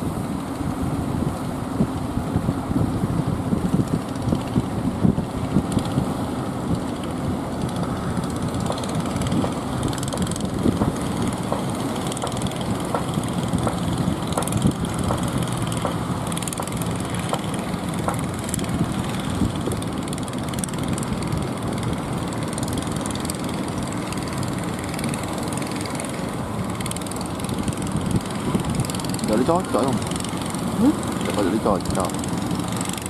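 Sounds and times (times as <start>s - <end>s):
boat engine humming: 0.0s - 33.0s
waves breaking: 0.0s - 33.0s
wind: 0.0s - 33.0s.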